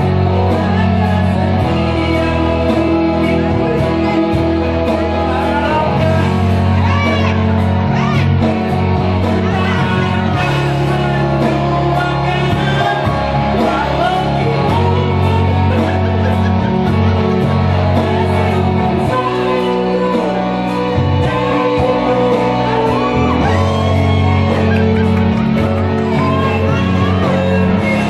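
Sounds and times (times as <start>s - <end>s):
amplified backing music: 0.0s - 28.0s
woman singing into a microphone: 18.0s - 24.1s, 26.0s - 28.0s.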